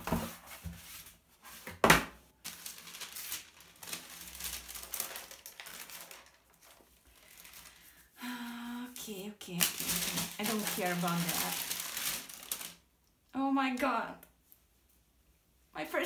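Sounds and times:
tissue paper rustling: 2.4s - 8.2s, 9.0s - 12.8s.

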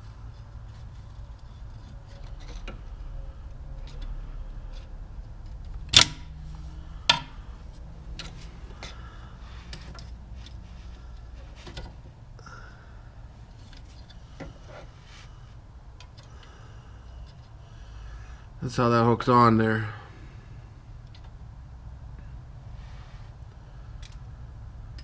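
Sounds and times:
light metallic taps and clinks: 24.0s - 24.3s
tools clicking on metal brake parts: 24.0s - 24.3s.

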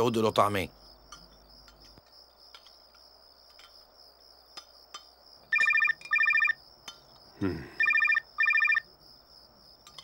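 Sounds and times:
crickets chirping: 0.0s - 10.0s
telephone ringing: 5.5s - 6.6s, 7.8s - 8.9s.

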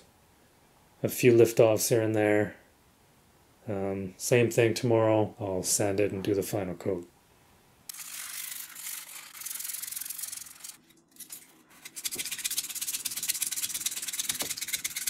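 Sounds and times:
sanding drywall scratchy rubbing: 8.5s - 15.0s.

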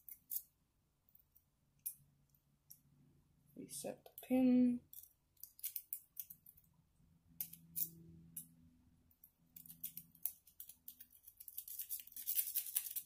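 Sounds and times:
lock pick clicking and scraping: 4.9s - 6.7s, 7.4s - 8.0s, 9.6s - 13.0s.

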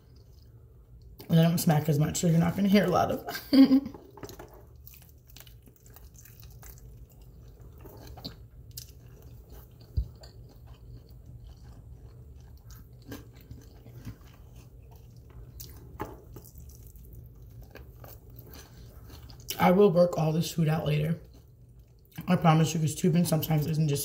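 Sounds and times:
person chewing chicken wing: 0.0s - 1.3s, 4.2s - 19.6s, 21.2s - 22.2s.

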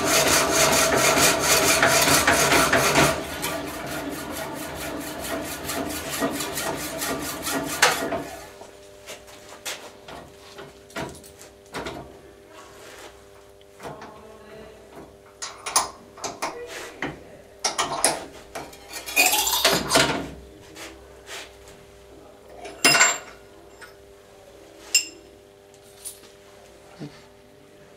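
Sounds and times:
metallic ring: 24.9s - 25.3s.

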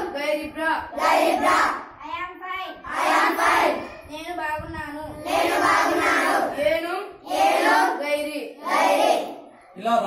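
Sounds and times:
children speaking in chorus: 1.0s - 6.6s.

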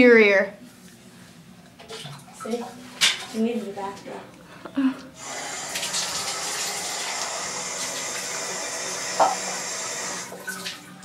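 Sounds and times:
water running from a tap: 5.2s - 11.0s.

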